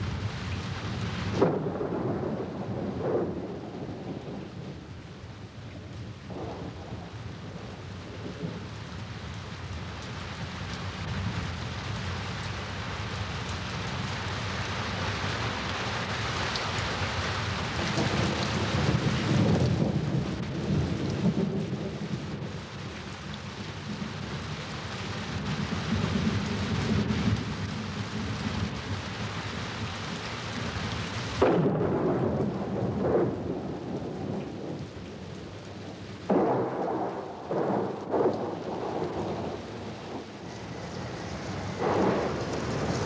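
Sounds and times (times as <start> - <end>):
steady thunder rumble: 0.0 - 12.0, 15.6 - 43.0
rain hiss: 0.0 - 43.0
thunder crashes: 1.3 - 4.9, 6.3 - 8.6, 31.4 - 35.4, 36.3 - 43.0.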